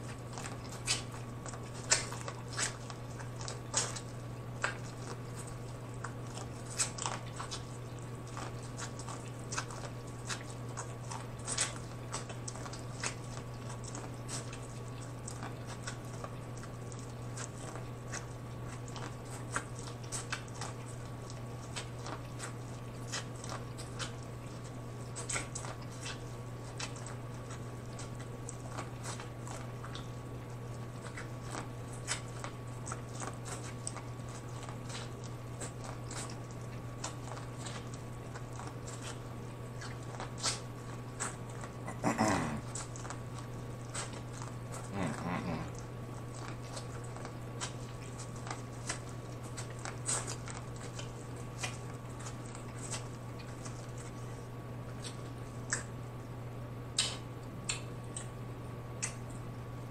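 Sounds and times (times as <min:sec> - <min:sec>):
chewing corn on the cob: 0:00.0 - 0:59.9
steady low hum: 0:00.0 - 0:59.9
person murmuring: 0:41.9 - 0:42.7, 0:44.9 - 0:45.8.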